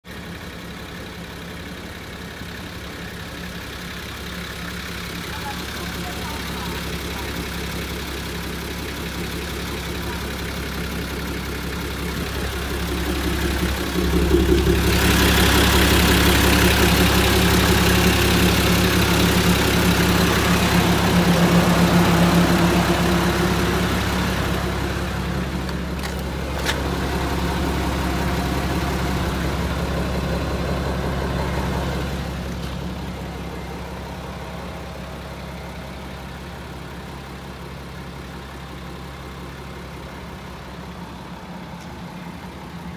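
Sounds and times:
diesel engine idling: 0:00.0 - 0:42.9.

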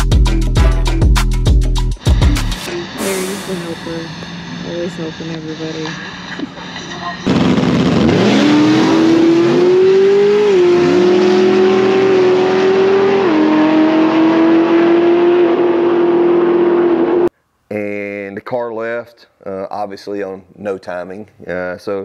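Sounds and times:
drag car engine at full throttle: 0:07.2 - 0:17.3.

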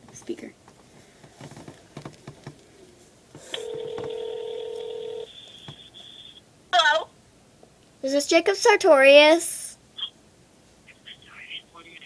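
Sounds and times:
phone ringback tone: 0:03.4 - 0:06.3.

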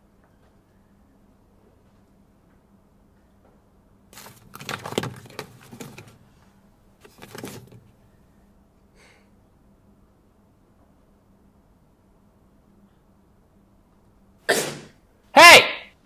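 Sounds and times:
book pages rustling: 0:04.2 - 0:06.4, 0:07.0 - 0:08.0.

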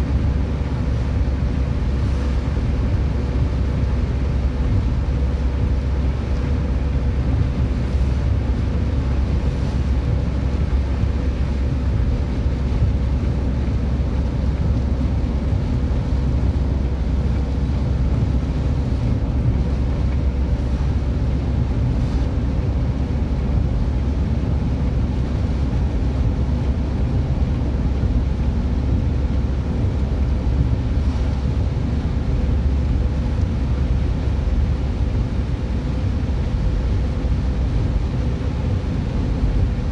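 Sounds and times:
tyre and engine rumble: 0:00.0 - 0:39.9.

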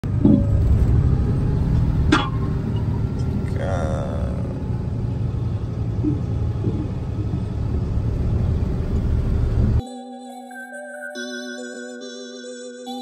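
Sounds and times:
truck engine and road rumble: 0:00.0 - 0:09.8.

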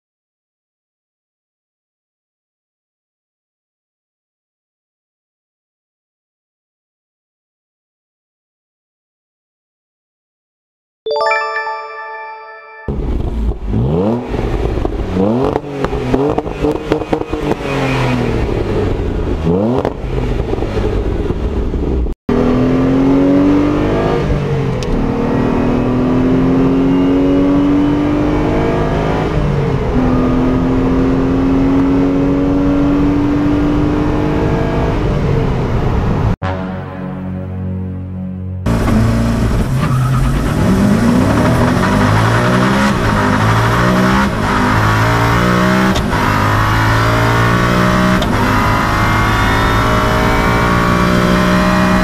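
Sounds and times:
car accelerating with upshifts: 0:12.9 - 0:36.4, 0:38.7 - 0:52.0
car engine revving: 0:12.9 - 0:52.0.

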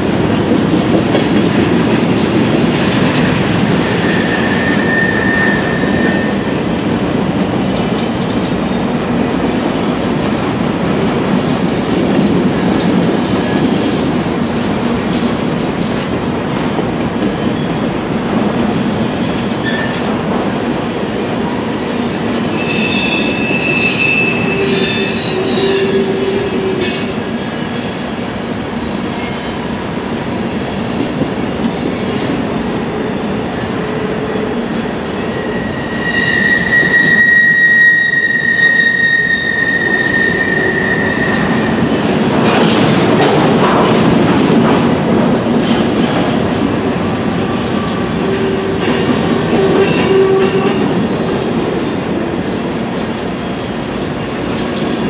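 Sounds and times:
freight train wheels rumbling: 0:00.0 - 0:55.0
high wheel squeals: 0:04.0 - 0:06.5, 0:19.6 - 0:27.0, 0:35.3 - 0:41.9.

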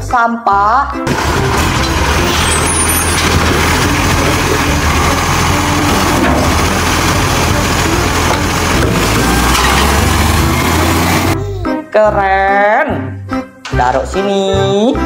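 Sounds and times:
garbage truck engine and hydraulics: 0:01.0 - 0:11.4.

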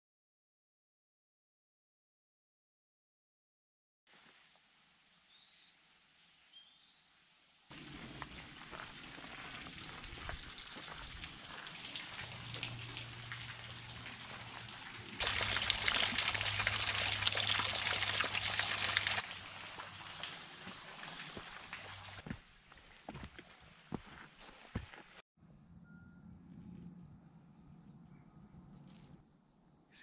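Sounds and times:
water trickling and dripping: 0:07.7 - 0:22.9
water splashing on hand: 0:08.0 - 0:22.2.

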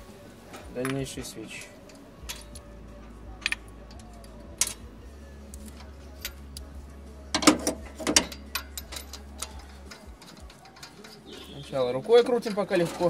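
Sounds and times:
steady low hum: 0:00.0 - 0:10.5
metal hand tools clinking: 0:00.6 - 0:02.7, 0:03.4 - 0:04.9, 0:07.4 - 0:13.0.

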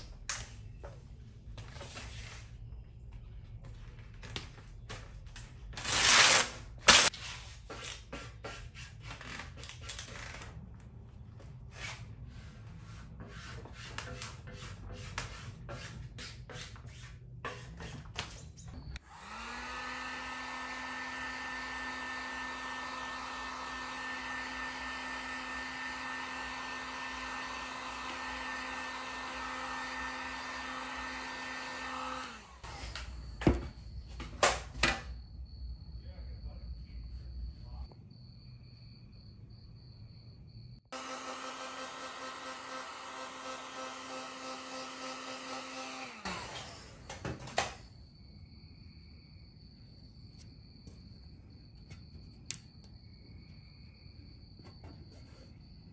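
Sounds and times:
heat gun fan hum: 0:19.0 - 0:33.1, 0:41.0 - 0:47.2.

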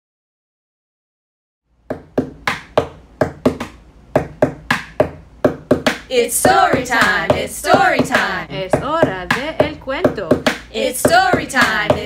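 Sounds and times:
sharp rhythmic taps: 0:01.8 - 0:12.0
person speaking: 0:06.1 - 0:12.0.

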